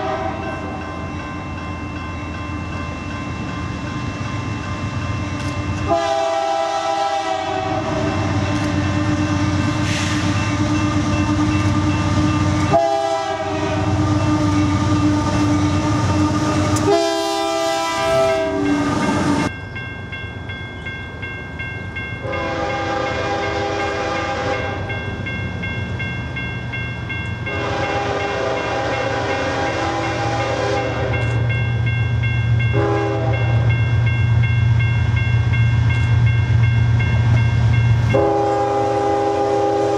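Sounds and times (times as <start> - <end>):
train horn blasts: 0.0 - 0.9, 5.8 - 19.5, 22.2 - 24.9, 27.5 - 31.4, 32.7 - 33.7, 38.0 - 39.9
diesel locomotive rumble: 0.0 - 39.9.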